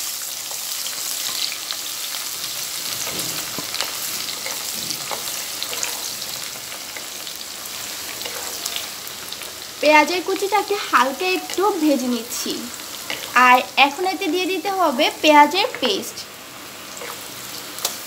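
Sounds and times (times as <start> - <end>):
onions sizzling in oil: 0.0 - 18.0
wooden spatula scraping pan: 2.8 - 7.1, 7.8 - 9.0.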